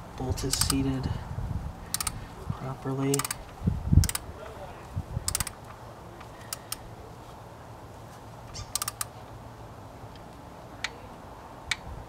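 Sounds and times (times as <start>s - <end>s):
torque wrench ratcheting clicks: 0.5s - 0.9s, 1.9s - 2.2s, 3.1s - 4.2s, 5.2s - 5.6s, 6.5s - 6.8s, 8.7s - 9.1s.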